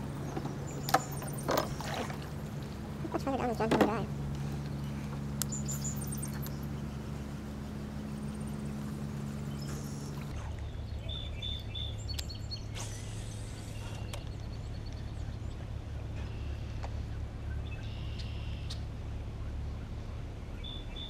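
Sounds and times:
steady low hum: 0.0s - 21.0s
bird chirps: 0.1s - 2.0s, 4.6s - 15.6s, 17.5s - 18.8s.

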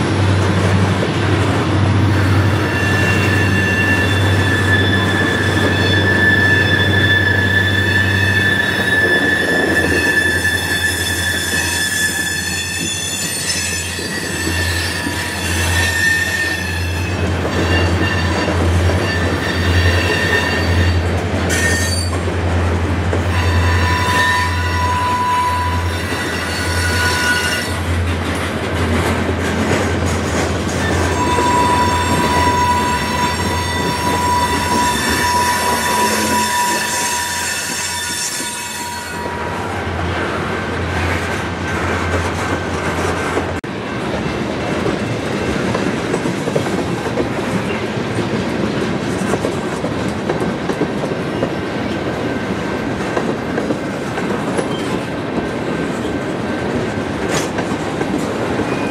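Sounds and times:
train wheels squealing: 2.1s - 22.2s, 23.3s - 27.9s, 30.8s - 39.7s, 54.6s - 55.1s, 58.6s - 58.9s.

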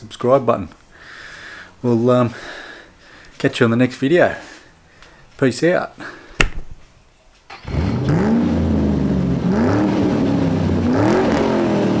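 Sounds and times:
engine revving: 7.5s - 12.0s.

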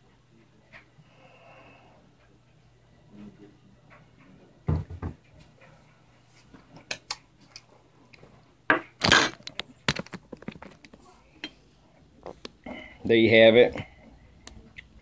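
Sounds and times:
dull knocks on wooden table: 4.7s - 5.2s.

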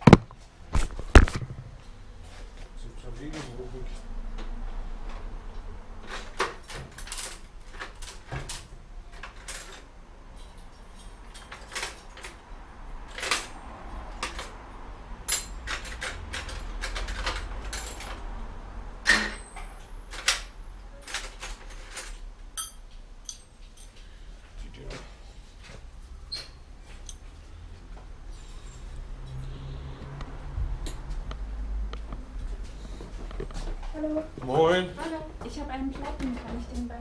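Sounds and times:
sharp knocks: 0.0s - 1.7s
metal hand tools clinking: 22.0s - 24.0s.

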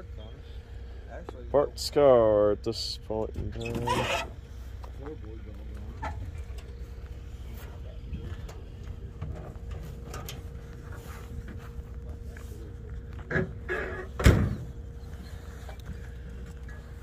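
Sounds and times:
wind rumbling on microphone: 7.8s - 11.6s.

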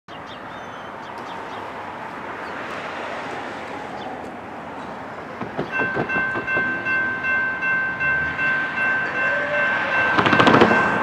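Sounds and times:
bird chirps: 0.1s - 1.7s
distant freight train rumbling: 1.7s - 11.0s.

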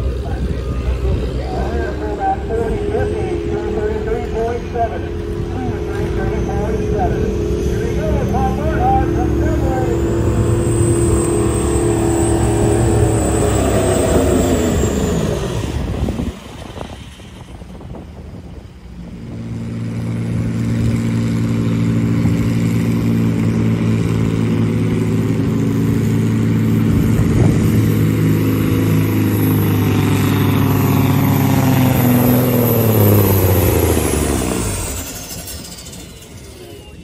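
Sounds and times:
diesel truck engine revving: 0.0s - 37.0s.

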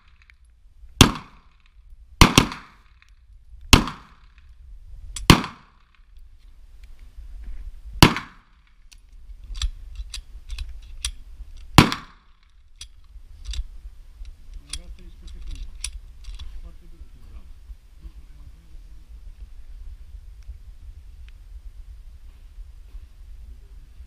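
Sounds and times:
pistol shots: 1.0s - 1.6s, 2.2s - 3.0s, 3.7s - 4.4s, 5.2s - 6.0s, 8.0s - 8.6s, 11.8s - 12.4s.

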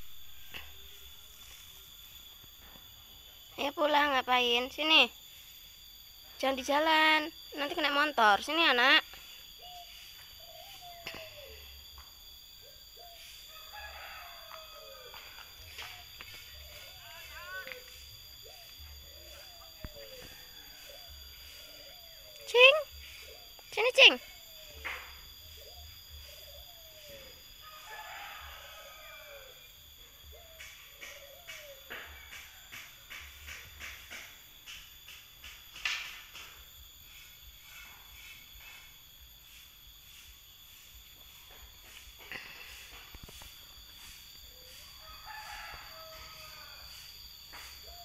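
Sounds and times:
rooster crowing faintly: 13.0s - 22.2s, 26.7s - 33.3s, 44.0s - 48.0s.

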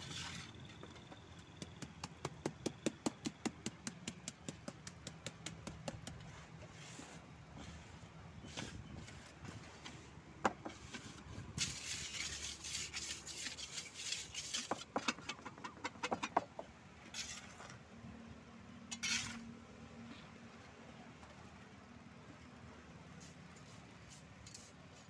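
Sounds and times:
wooden strip scraping cement: 0.0s - 0.9s, 5.8s - 17.8s, 18.9s - 19.5s.

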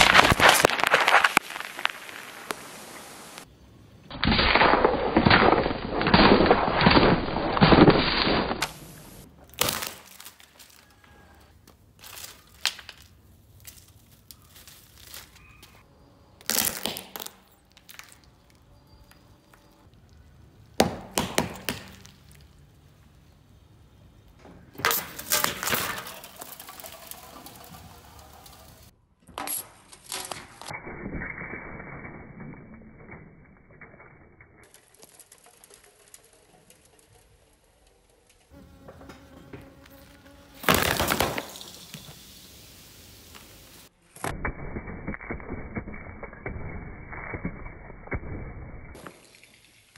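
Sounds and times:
tyres crushing objects: 0.0s - 2.7s, 4.1s - 15.8s, 16.4s - 20.0s, 20.6s - 22.7s, 24.6s - 30.7s, 38.7s - 42.1s.

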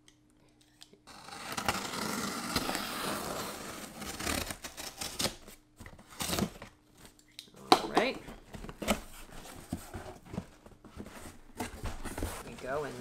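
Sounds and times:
knife slicing packing tape: 1.1s - 5.5s
scrapes and knocks on cardboard: 8.5s - 12.9s.

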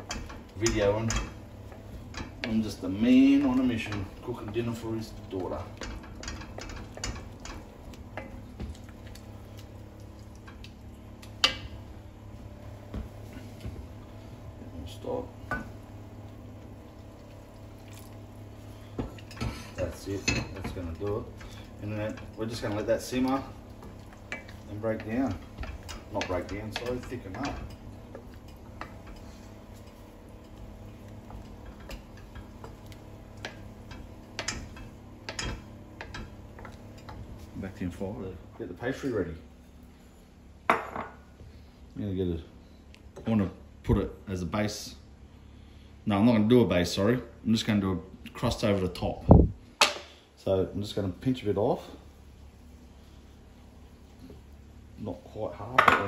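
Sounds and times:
wooden spatula stirring in a pan: 0.0s - 38.2s, 51.0s - 55.7s
wooden spoon scraping a pan: 17.8s - 37.9s.

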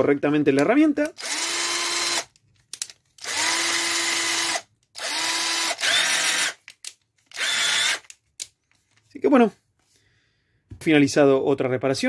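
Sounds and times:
cordless drill motor spinning: 1.1s - 2.3s, 3.2s - 8.1s.

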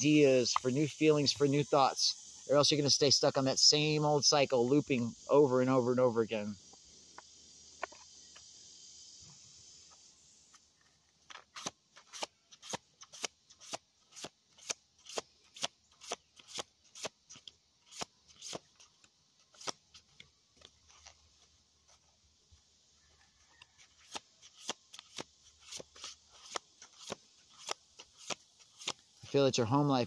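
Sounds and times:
cards being shuffled: 24.0s - 29.0s.

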